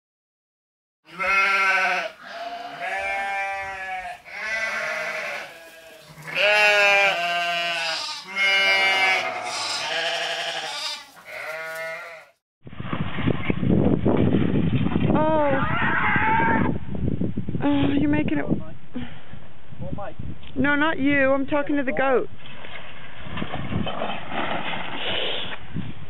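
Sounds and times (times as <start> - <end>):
goat bleating: 1.1 - 12.4.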